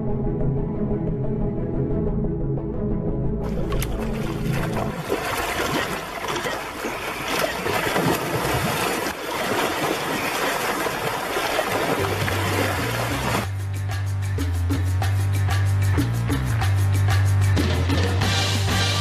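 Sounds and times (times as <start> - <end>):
music: 0.0 - 5.0, 12.2 - 19.0
water splashing in shallow sea: 3.4 - 13.5.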